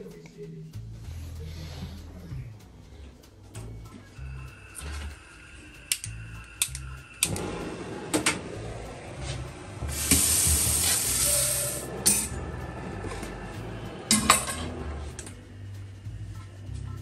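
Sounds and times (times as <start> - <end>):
tap water running: 6.0 - 12.3.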